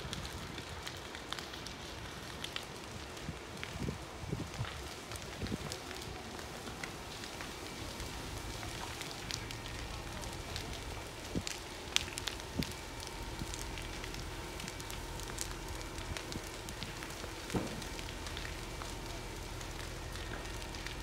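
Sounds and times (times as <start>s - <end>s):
fire crackling and popping: 0.0s - 21.0s
fire rushing: 0.0s - 21.0s.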